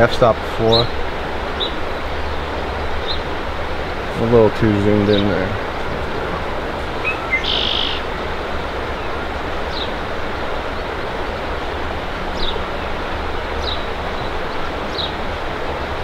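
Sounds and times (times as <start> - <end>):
outdoor background hiss: 0.0 - 16.0
buzzy bird note: 1.6 - 9.1
small bird chirping: 7.0 - 8.2.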